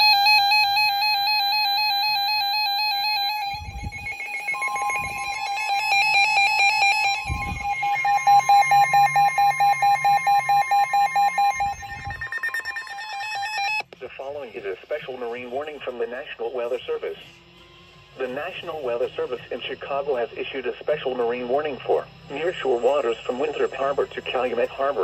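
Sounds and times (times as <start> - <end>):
fast beeping: 0.0 - 13.8
electronic beeping alert tones: 1.6 - 13.8
steady alert tone: 2.1 - 13.8.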